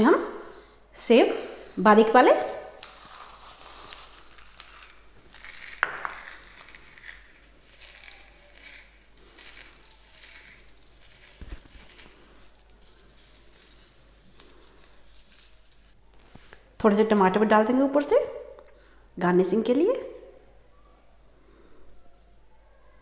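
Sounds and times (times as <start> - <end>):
crunchy rustling of fried noodles: 2.6 - 16.5.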